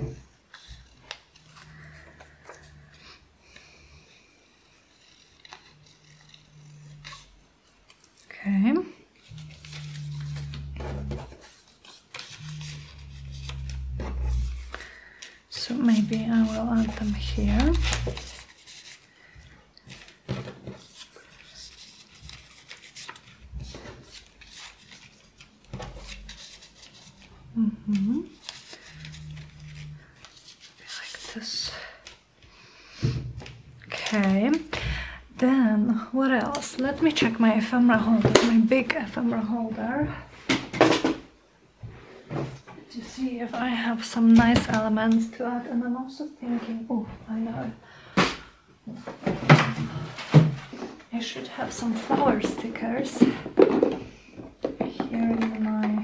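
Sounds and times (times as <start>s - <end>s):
paper rustling in plastic sleeve: 19.9s - 27.3s.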